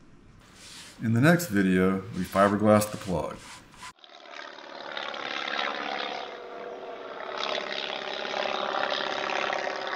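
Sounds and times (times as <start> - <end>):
propeller aircraft engine drone: 4.0 - 9.9.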